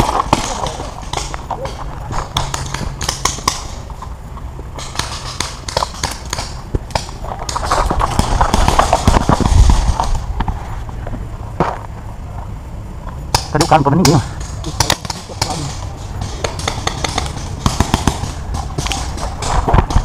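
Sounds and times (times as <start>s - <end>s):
paintball markers firing: 0.0s - 3.9s, 4.8s - 10.2s, 13.3s - 20.0s
gear and foliage rustling: 0.0s - 20.0s.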